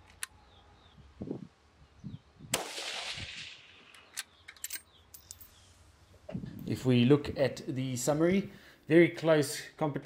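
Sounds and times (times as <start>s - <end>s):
rifle shot: 2.5s - 3.9s.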